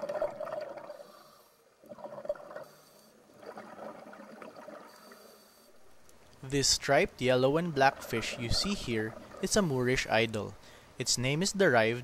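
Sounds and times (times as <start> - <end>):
underwater bubbling and gurgling: 0.0 - 10.1.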